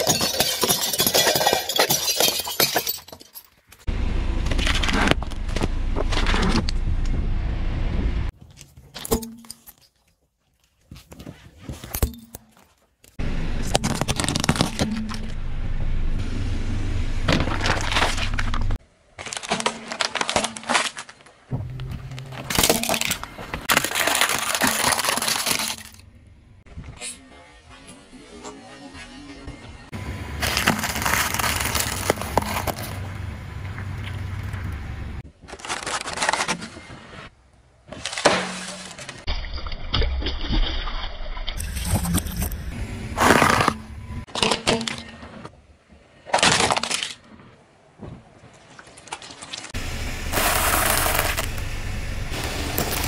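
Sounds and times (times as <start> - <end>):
car rumble: 3.9 - 8.3, 13.2 - 18.8, 21.5 - 24.5, 29.8 - 35.2, 41.6 - 44.3, 49.8 - 53.0
tyre crushing plastic objects: 13.6 - 15.3, 19.2 - 26.0, 30.4 - 33.0, 35.3 - 37.0, 50.3 - 51.6, 52.3 - 53.0
foil balloon crinkling: 22.3 - 26.0, 30.4 - 33.0, 50.3 - 53.0
balloon bursting: 50.3 - 51.7.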